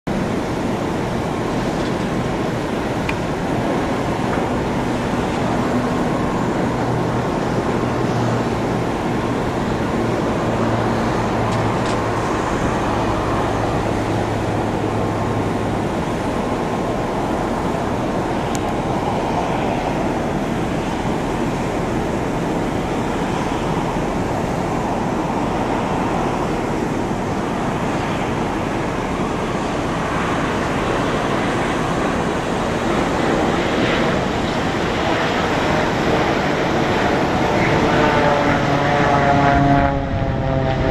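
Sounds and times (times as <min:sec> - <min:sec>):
jet engines rumbling: 0:00.0 - 0:40.9.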